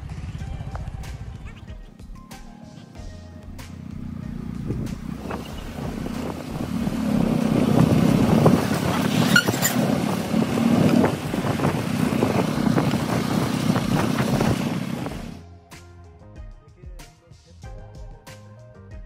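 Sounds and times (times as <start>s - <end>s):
wind and road noise: 0.0s - 1.8s, 2.8s - 15.4s
motorcycle engine running: 0.0s - 1.9s, 3.0s - 15.4s.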